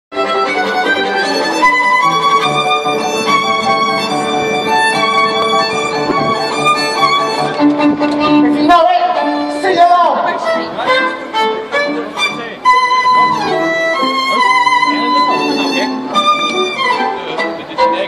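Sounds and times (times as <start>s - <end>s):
amplified live band music: 0.2s - 18.0s.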